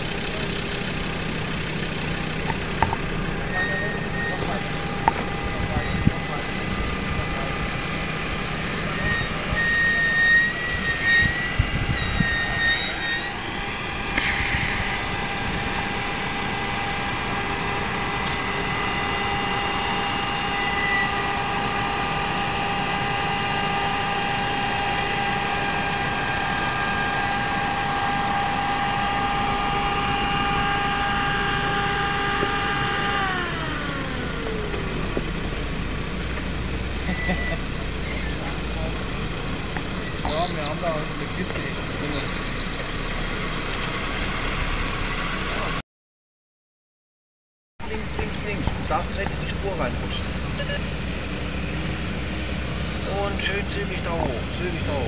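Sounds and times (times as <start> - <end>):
off-road car engine whine: 0.0 - 45.8, 47.8 - 55.0
wind rumble on microphone: 5.0 - 7.4, 10.5 - 12.6.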